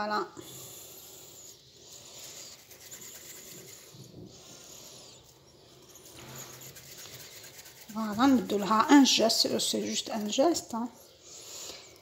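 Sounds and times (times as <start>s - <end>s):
hands rolling dough: 2.0s - 10.7s.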